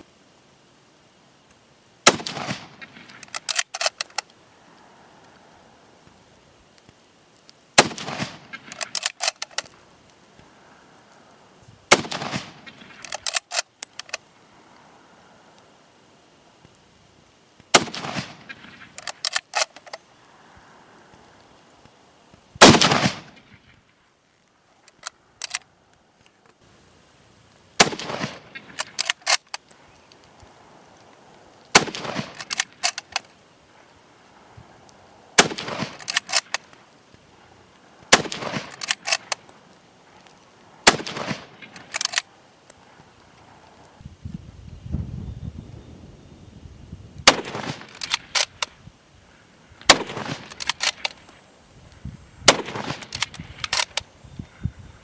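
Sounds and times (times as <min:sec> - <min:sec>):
rifle shots: 0:02.0 - 0:04.1, 0:07.8 - 0:09.6, 0:11.9 - 0:14.1, 0:17.7 - 0:19.9, 0:22.6 - 0:23.7, 0:27.8 - 0:29.4, 0:31.7 - 0:33.2, 0:35.4 - 0:36.7, 0:38.1 - 0:39.4, 0:40.8 - 0:42.3, 0:47.2 - 0:48.7, 0:49.9 - 0:51.2, 0:52.4 - 0:54.0
rifle bolt metallic clicks: 0:02.1 - 0:04.8, 0:06.8 - 0:09.8, 0:11.9 - 0:14.2, 0:17.7 - 0:20.0, 0:24.8 - 0:26.6, 0:27.8 - 0:33.3, 0:35.4 - 0:36.8, 0:38.1 - 0:39.6, 0:40.2 - 0:42.8, 0:47.3 - 0:48.8, 0:49.8 - 0:51.4, 0:52.4 - 0:54.1.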